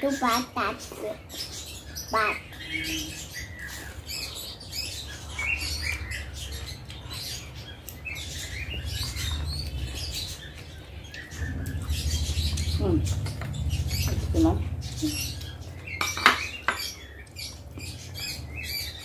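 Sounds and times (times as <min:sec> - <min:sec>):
low steady hum: 0:01.8 - 0:19.0
wet chewing and lip smacks: 0:05.2 - 0:13.8.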